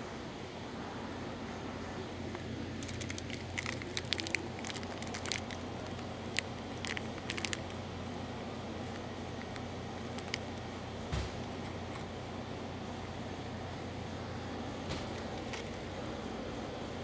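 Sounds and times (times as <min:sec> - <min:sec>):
shop indoor hum: 0:00.0 - 0:17.0
small sharp clicks and crackles: 0:02.3 - 0:07.8, 0:08.8 - 0:10.7.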